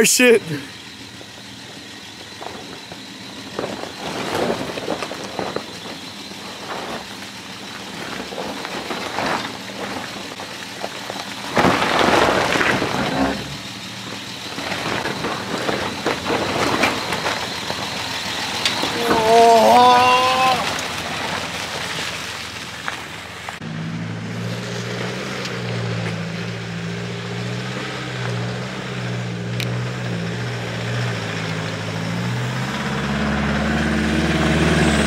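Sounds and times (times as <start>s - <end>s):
engine running low and steady: 0.0s - 35.0s
tyres crunching over rocks: 2.3s - 23.6s.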